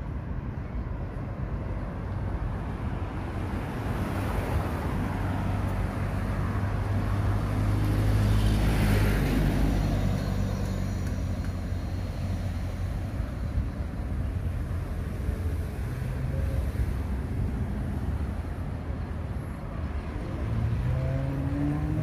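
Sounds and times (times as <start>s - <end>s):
vehicle passing by: 19.8s - 22.0s.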